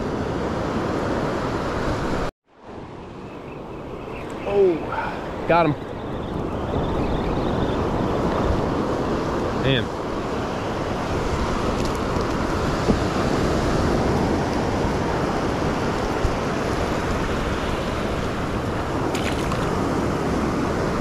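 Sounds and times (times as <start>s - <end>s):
wind on microphone: 3.1s - 21.0s
ocean surf washing up beach: 4.2s - 7.0s, 7.8s - 21.0s.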